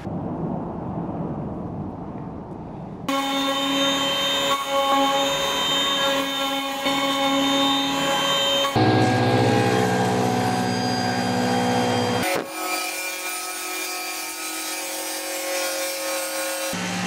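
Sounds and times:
router spindle milling wood: 3.1 - 12.4
table saw cutting: 3.1 - 17.0.

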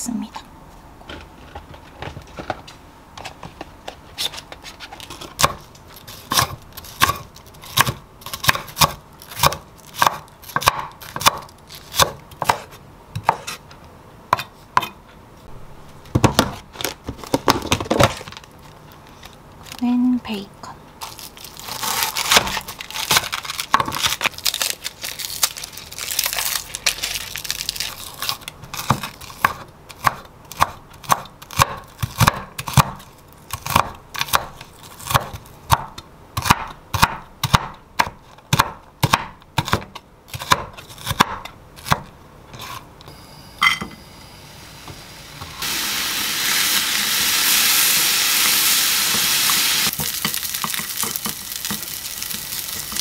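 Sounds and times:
knife chopping on wooden board: 6.3 - 13.6, 28.8 - 33.0, 33.6 - 42.8
paper crinkling: 21.0 - 28.5
bacon sizzling in a pan: 44.4 - 53.0.

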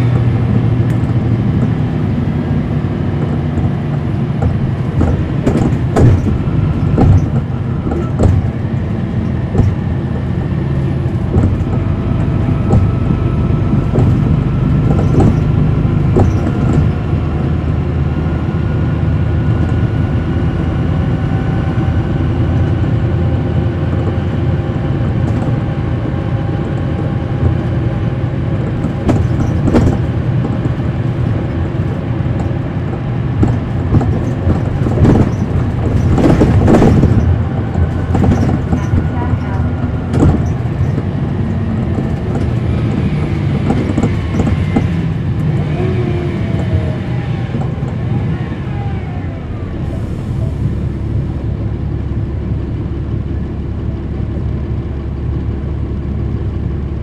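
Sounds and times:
bus diesel engine droning: 0.0 - 57.0
knocks and rattles: 3.1 - 9.9, 11.1 - 17.1, 28.6 - 45.1.

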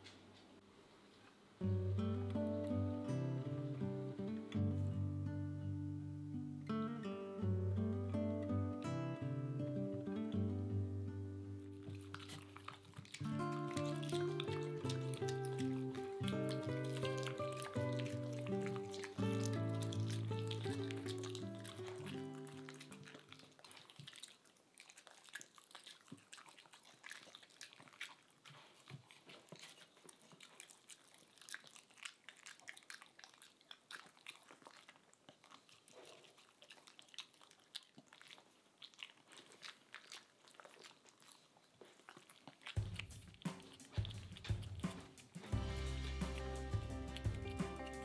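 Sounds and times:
dogs crunching treats: 11.3 - 48.0
background music: 13.4 - 22.8, 44.1 - 48.0.

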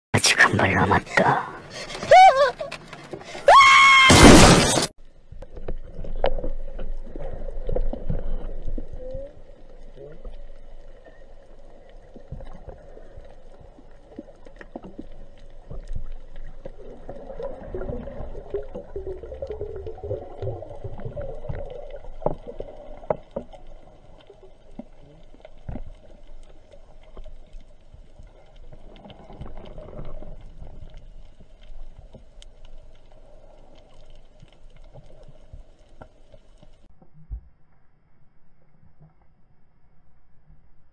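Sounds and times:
underwater rumble of moving water: 5.0 - 40.9
wavering gurgle: 5.9 - 26.1.

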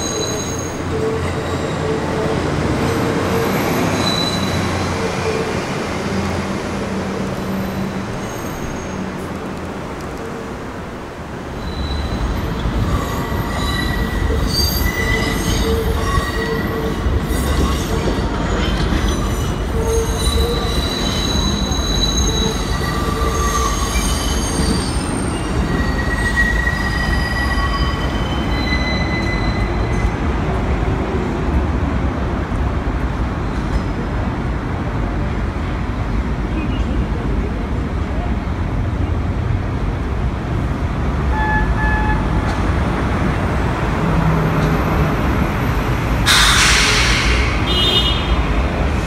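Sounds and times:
subway train rumbling: 0.0 - 49.0
wheels squealing: 2.8 - 6.2, 7.4 - 9.2, 11.6 - 30.1.

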